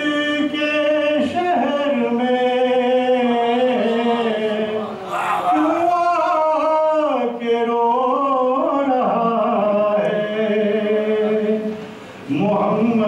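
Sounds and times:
man singing devotional song: 0.0s - 13.0s.

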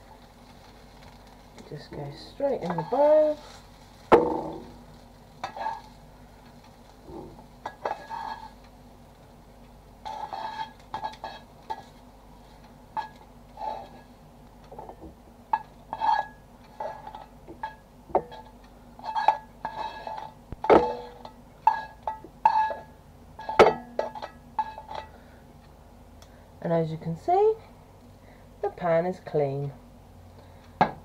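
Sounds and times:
tongs clinking on pan and plate: 15.5s - 25.1s.

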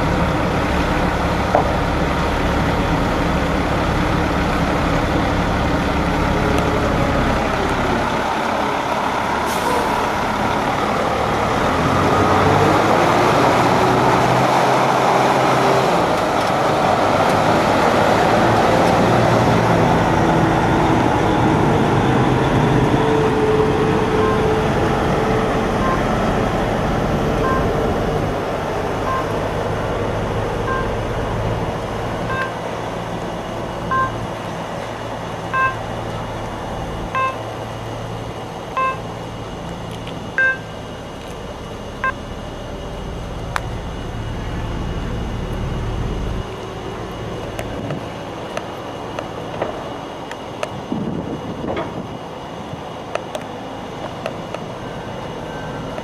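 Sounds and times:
diesel truck engine pulling away: 0.0s - 56.0s
reversing alarm beeping: 23.5s - 24.8s, 25.8s - 29.6s, 30.6s - 33.0s, 33.6s - 34.4s, 35.5s - 35.9s, 37.1s - 37.6s, 38.7s - 39.4s, 40.3s - 41.1s, 41.9s - 46.0s.

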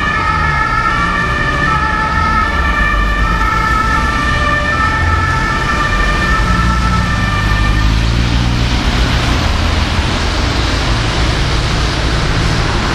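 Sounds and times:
ambulance two-tone siren: 0.0s - 9.8s
city traffic: 0.0s - 12.9s.

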